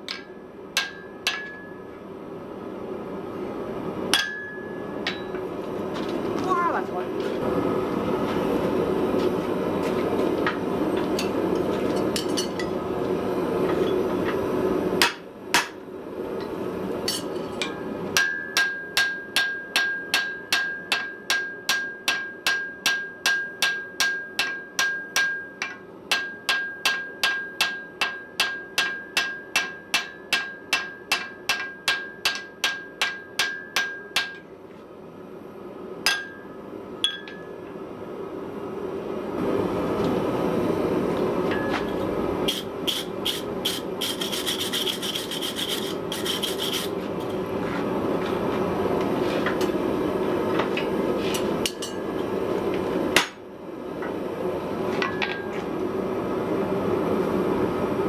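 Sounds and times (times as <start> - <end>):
hammer ringing on anvil: 0.0 - 1.9, 4.1 - 5.4, 17.1 - 34.4, 36.1 - 37.6.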